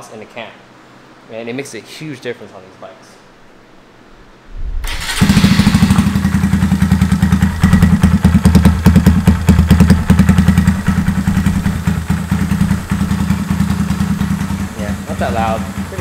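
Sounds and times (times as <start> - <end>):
motorcycle engine running: 4.8 - 16.0.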